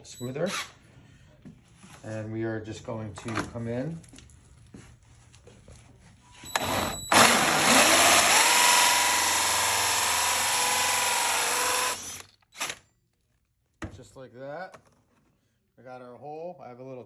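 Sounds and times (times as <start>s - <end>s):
drill hole saw grinding through metal: 6.5s - 12.8s.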